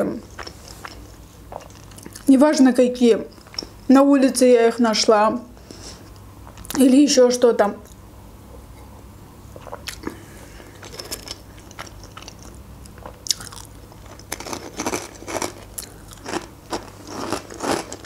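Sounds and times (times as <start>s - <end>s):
crunching dry croutons: 10.8s - 18.0s.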